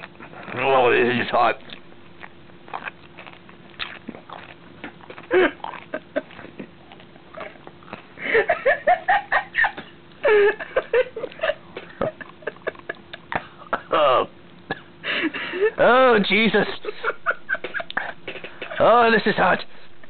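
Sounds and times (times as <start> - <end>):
chewing clicks: 1.5 - 8.1
man laughing: 5.3 - 6.8, 8.2 - 19.0.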